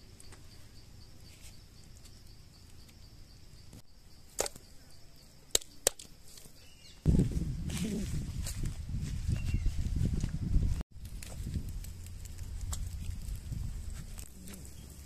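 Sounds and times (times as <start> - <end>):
insects buzzing: 0.0 - 8.2, 11.4 - 15.0.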